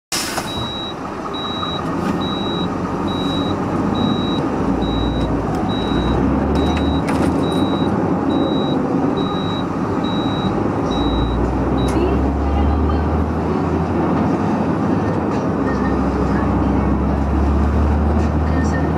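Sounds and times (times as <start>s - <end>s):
diesel truck engine under load: 0.1s - 18.9s
short high-pitched beeps: 0.5s - 12.0s.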